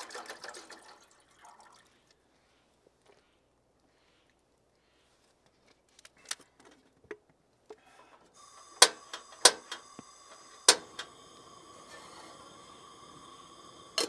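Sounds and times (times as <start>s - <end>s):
gas burner hissing: 8.3s - 14.0s
igniter clicking: 8.4s - 14.0s.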